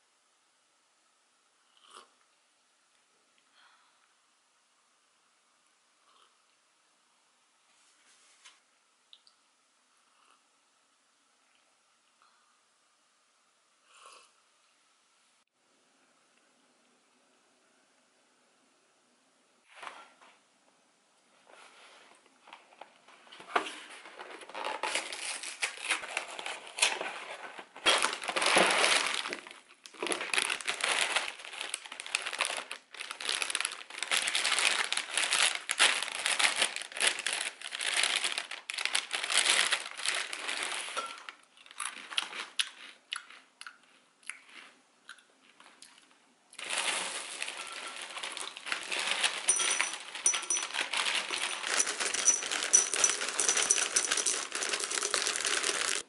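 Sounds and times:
plastic bag crinkling: 22.5 - 43.0, 46.6 - 56.0
cereal pouring into ceramic bowl: 46.6 - 56.0.

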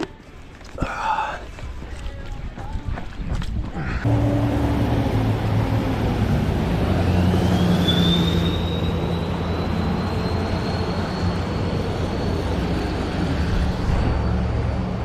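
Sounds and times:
traffic noise: 3.4 - 15.0
vehicle engine humming: 4.0 - 15.0.

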